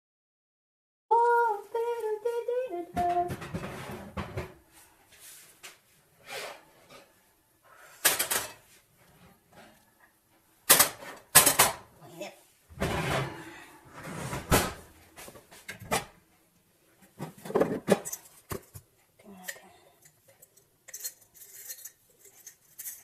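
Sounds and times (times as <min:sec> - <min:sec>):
metal bakeware clattering: 0:08.0 - 0:08.7, 0:10.7 - 0:11.9, 0:12.7 - 0:14.9, 0:20.4 - 0:23.0.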